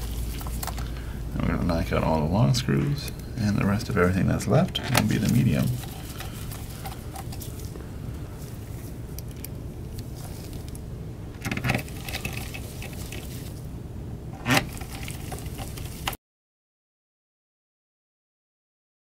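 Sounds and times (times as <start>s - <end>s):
handling sounds: 0.0s - 1.1s, 2.7s - 13.7s, 14.4s - 16.2s.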